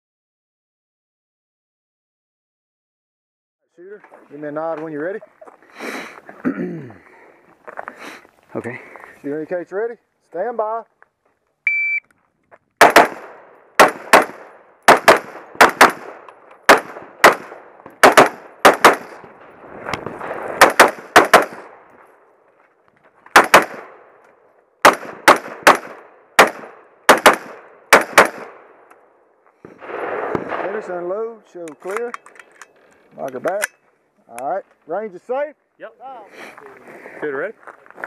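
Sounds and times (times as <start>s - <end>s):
rifle firing rapid shots: 12.8s - 19.2s, 20.6s - 21.8s, 23.3s - 24.0s, 24.8s - 28.7s.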